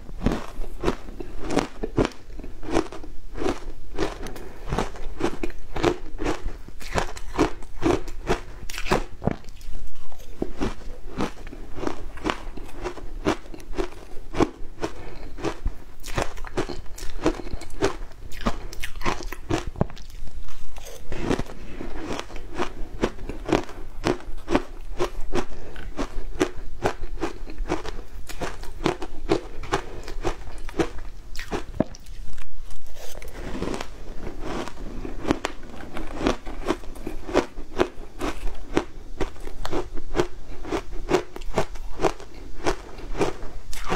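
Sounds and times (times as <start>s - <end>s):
chewing shaved ice: 0.2s - 43.9s.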